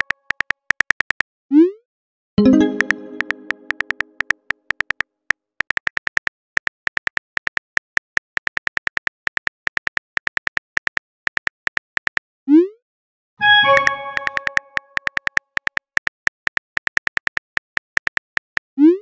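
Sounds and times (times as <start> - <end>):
phone keyboard typing clicks: 0.0 - 1.2, 2.4 - 5.0, 13.6 - 18.4
chime ringing: 2.4 - 3.7, 13.4 - 14.7.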